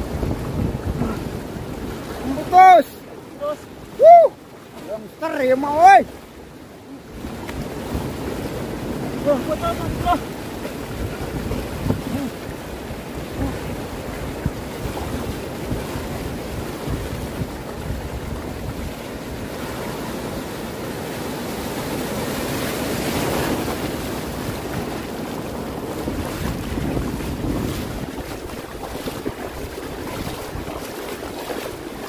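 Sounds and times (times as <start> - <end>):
wind buffeting microphone: 0.0 - 3.0, 7.1 - 32.0
surf washing over shallow water: 0.0 - 32.0
splashing steps in water: 23.0 - 32.0.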